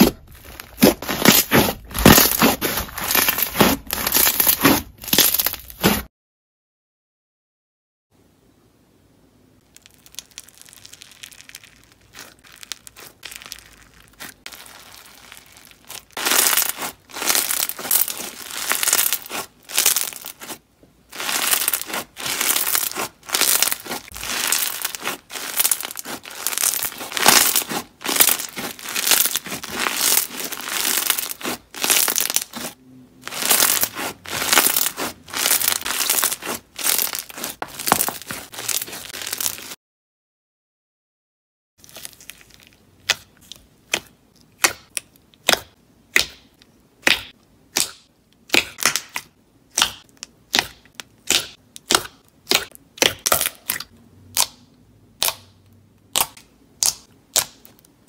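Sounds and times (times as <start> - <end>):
slime crackly crunching: 0.0 - 6.1, 9.6 - 39.8, 41.8 - 44.1.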